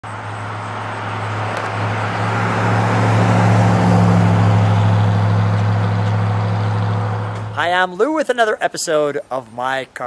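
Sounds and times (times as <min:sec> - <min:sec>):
car driving past: 0:00.1 - 0:07.8.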